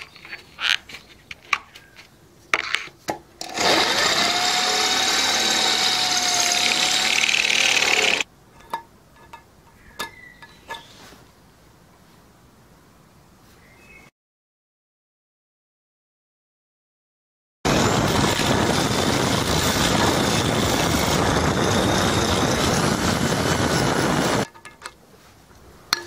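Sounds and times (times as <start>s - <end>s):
electric drill boring wood: 3.4s - 8.3s, 17.7s - 24.5s.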